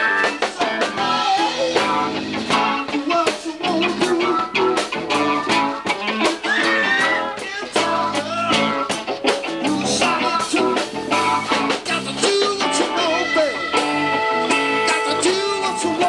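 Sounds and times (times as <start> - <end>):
man singing into a microphone: 0.0 - 1.9, 2.8 - 5.4, 6.4 - 9.0, 9.6 - 13.9, 14.8 - 16.0
electric guitar: 0.0 - 16.0
steady drum beat: 0.0 - 16.0.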